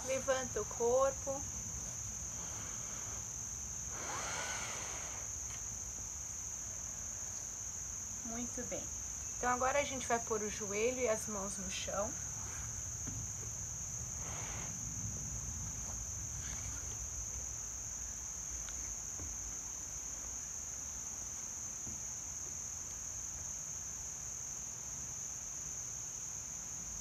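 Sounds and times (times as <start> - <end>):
insect chorus: 0.0 - 27.0
rustles on yoga mat: 14.2 - 22.7.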